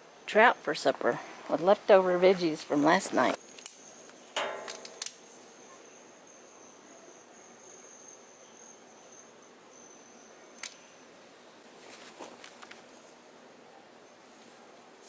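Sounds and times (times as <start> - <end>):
high-pitched insect trill: 3.4 - 11.0.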